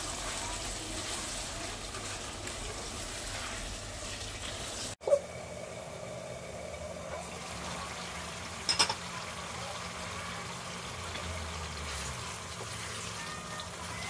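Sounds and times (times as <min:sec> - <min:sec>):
spatula stirring curry: 0:00.0 - 0:04.2
glass lid clinking: 0:08.7 - 0:09.0.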